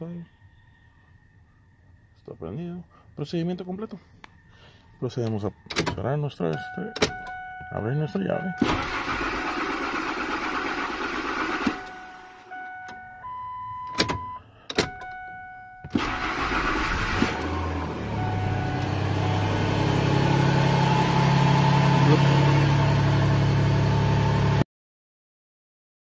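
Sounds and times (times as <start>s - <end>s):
dashboard warning chimes: 5.0s - 9.6s, 11.3s - 16.6s, 17.4s - 22.6s
engine cranking and starting: 8.6s - 12.5s, 15.9s - 19.0s
truck engine running: 8.6s - 13.2s, 15.9s - 24.6s.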